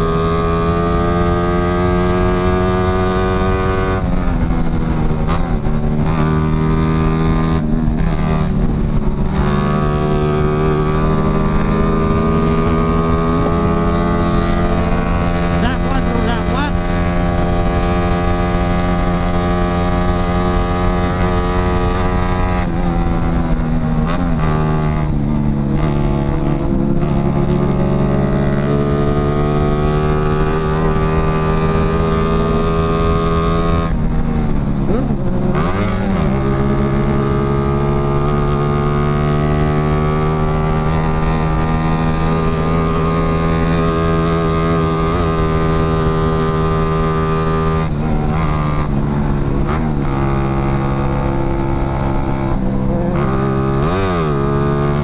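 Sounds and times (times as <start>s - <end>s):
motorcycle engine cruising: 0.0s - 55.0s.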